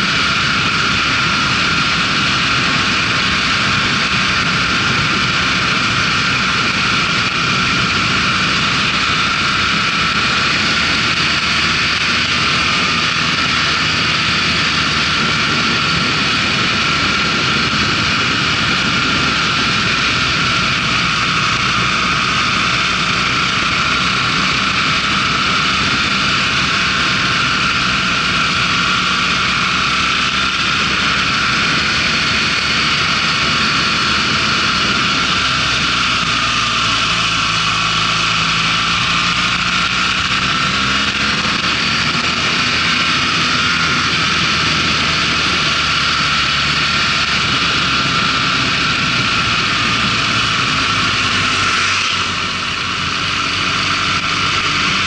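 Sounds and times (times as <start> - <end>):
motorcycle engine drone: 0.0 - 55.0
wind rushing over camera: 0.0 - 55.0.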